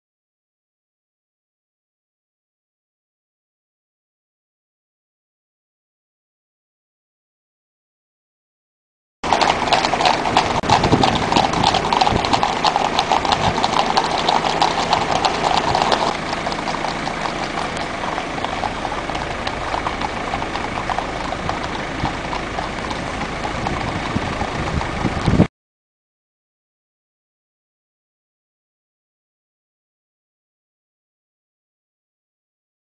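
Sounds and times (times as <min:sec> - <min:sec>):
hooves clip-clopping on road: 0:09.2 - 0:25.5
road noise: 0:09.2 - 0:25.5
vehicle engine running: 0:09.2 - 0:25.5.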